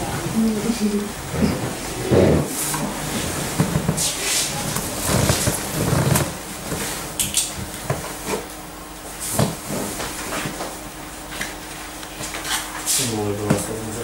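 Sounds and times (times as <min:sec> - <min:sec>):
rustling: 0:01.5 - 0:07.0.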